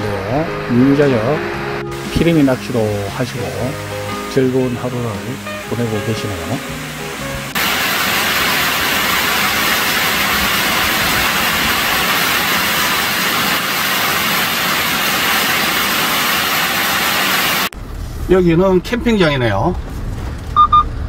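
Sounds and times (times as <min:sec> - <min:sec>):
stream water rushing: 0:01.9 - 0:17.7.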